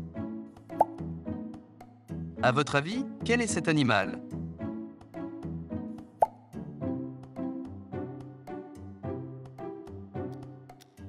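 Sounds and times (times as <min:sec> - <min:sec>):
background music with beat: 0:04.3 - 0:11.0.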